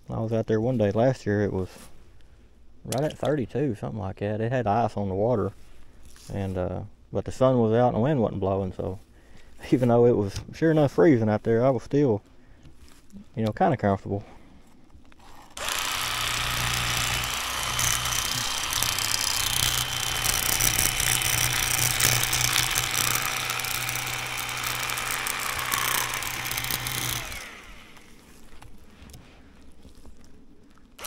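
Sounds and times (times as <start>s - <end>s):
electric fillet knife buzzing: 15.5s - 28.2s.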